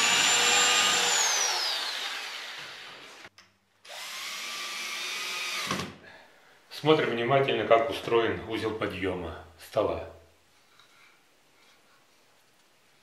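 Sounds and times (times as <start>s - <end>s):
cordless drill driving screw: 0.0s - 3.2s, 3.9s - 6.0s
electric drill whine: 0.0s - 3.3s, 3.9s - 5.9s.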